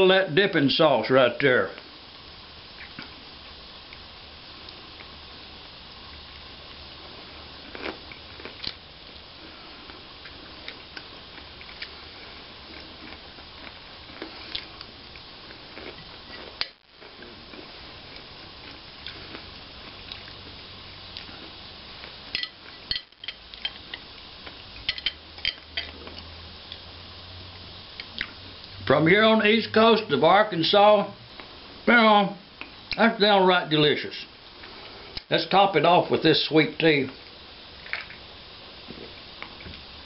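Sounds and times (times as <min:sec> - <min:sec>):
steady hiss: 0:00.0 - 0:40.0
chopsticks and fork on a plate: 0:22.3 - 0:26.3.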